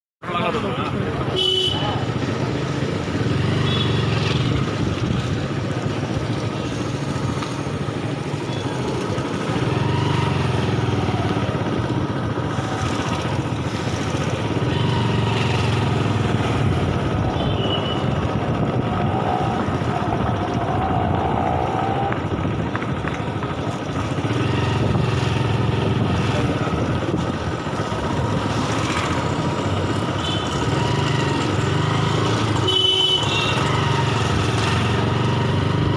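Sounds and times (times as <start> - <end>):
low traffic rumble: 0.2 - 35.9
motorcycle engine passing: 2.0 - 17.4.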